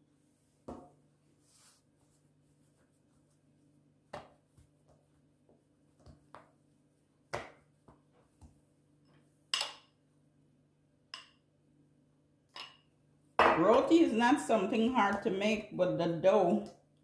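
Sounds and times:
hands patting dough: 2.1 - 8.7.

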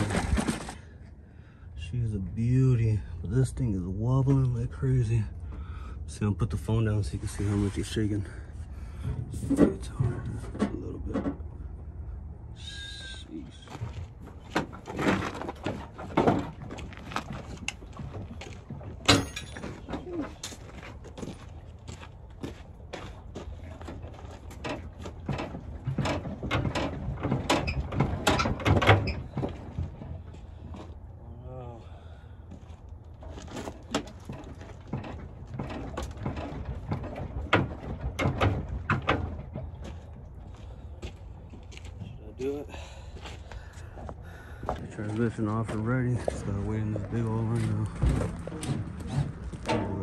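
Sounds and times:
metal clanks and knocks: 9.0 - 11.6, 13.7 - 21.5, 23.5 - 30.9, 33.2 - 40.5, 45.2 - 50.0.

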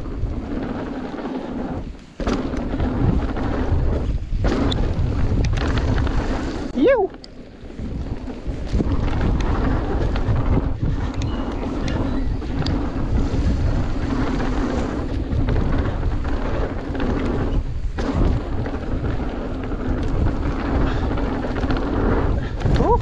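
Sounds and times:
bike knocks and rattles: 0.0 - 6.7, 7.3 - 23.0
tyres rumbling on dirt: 0.0 - 23.0
wind buffeting microphone: 0.0 - 23.0.

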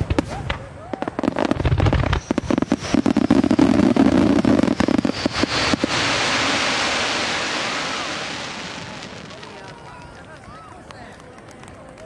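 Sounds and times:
fireworks bangs and crackling: 0.0 - 11.8
crowd applause: 8.8 - 12.0.

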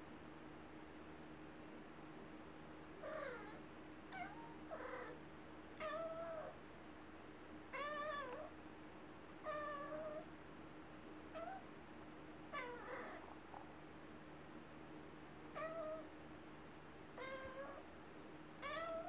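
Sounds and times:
faint steady hum: 0.0 - 19.0
kitten meowing: 4.2 - 5.1.

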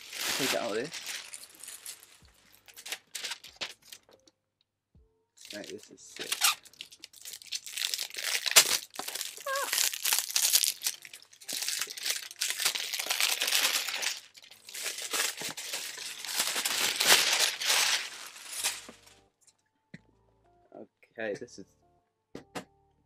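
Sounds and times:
packaging crinkling: 0.0 - 4.1, 5.4 - 19.1.

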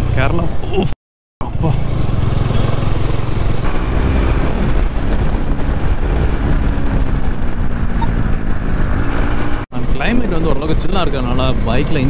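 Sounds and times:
motorcycle engine running: 1.4 - 9.6
wind on microphone: 2.2 - 12.0.

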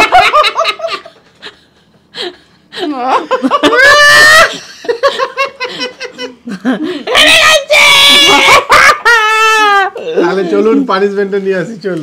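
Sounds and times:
people laughing hard: 0.0 - 2.4, 3.1 - 10.4
high-pitched laughing cry: 2.9 - 5.0, 7.0 - 10.4.

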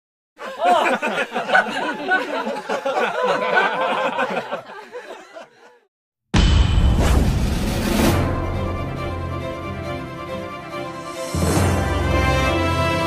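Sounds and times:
people laughing: 0.4 - 5.9
intro music with low boom: 6.4 - 12.1.

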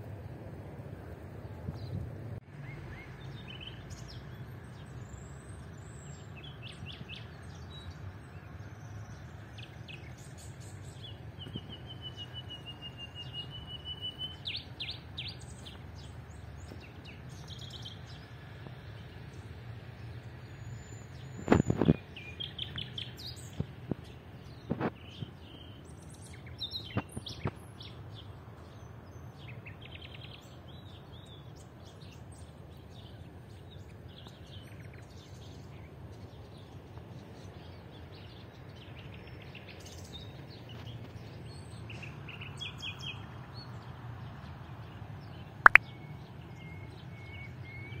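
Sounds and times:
outdoor background noise: 0.0 - 48.0
small birds chirping: 1.4 - 48.0
short sharp clicks: 45.6 - 45.8.

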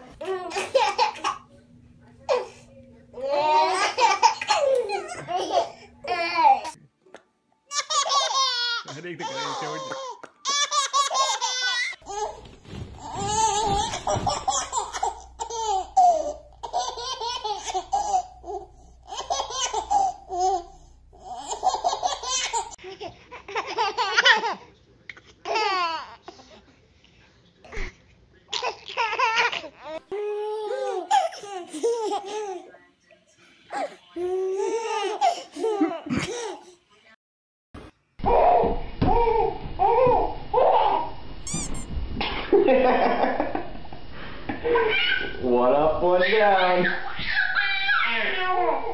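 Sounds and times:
babies laughing: 3.2 - 6.8, 7.7 - 12.4, 13.0 - 24.7, 44.6 - 45.4, 46.1 - 48.9.

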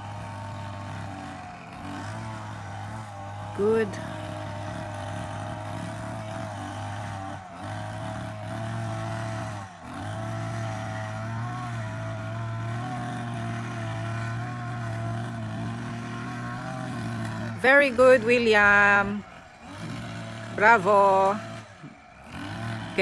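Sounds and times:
hedge trimmer motor running: 0.0 - 23.0.

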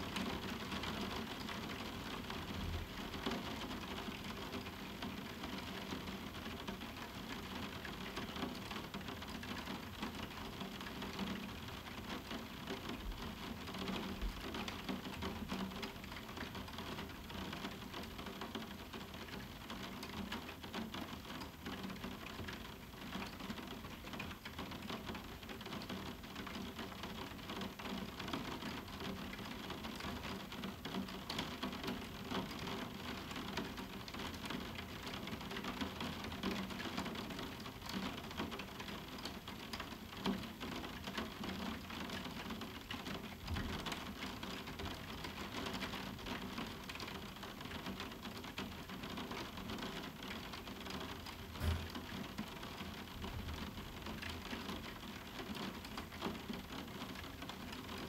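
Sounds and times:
rain on a roof window: 0.0 - 58.0.

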